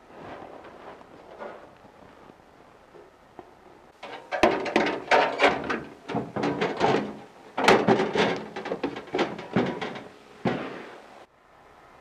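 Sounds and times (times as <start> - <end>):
sheet metal clanks and knocks: 4.0 - 10.7.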